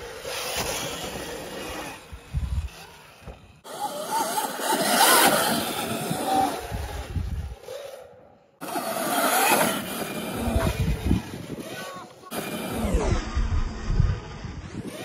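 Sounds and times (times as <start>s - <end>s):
tyres on dirt: 0.0s - 15.0s
wind rushing over microphone: 0.3s - 3.6s, 4.9s - 7.6s, 8.7s - 15.0s
wavering motor whine: 8.6s - 15.0s.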